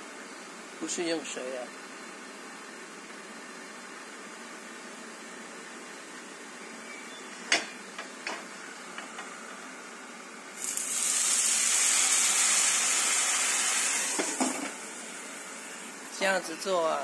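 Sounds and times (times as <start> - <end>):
dumplings sizzling in pan: 10.5 - 16.2.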